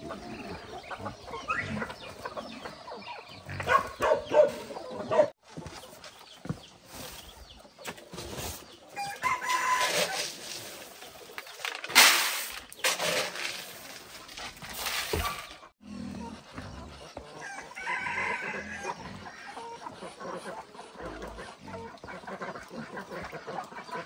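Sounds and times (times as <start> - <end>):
chickens clucking: 0.0 - 24.0
rooster crowing: 9.0 - 10.1, 17.4 - 18.9
plastic scoop digging grain: 9.3 - 15.6
grain pouring into basket: 9.4 - 15.2.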